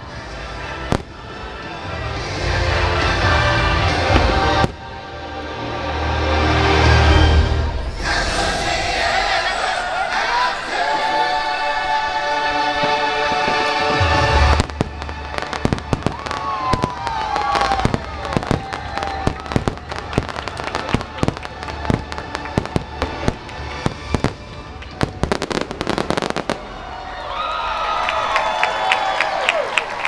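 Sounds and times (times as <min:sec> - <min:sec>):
orchestral show music: 0:00.0 - 0:27.4
fireworks bursts and crackling: 0:00.6 - 0:05.0, 0:12.6 - 0:27.0.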